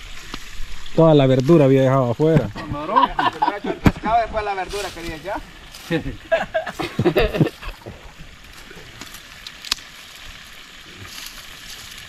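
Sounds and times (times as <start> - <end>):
oil popping and crackling: 0.0 - 12.0
fish frying in oil: 3.9 - 12.0.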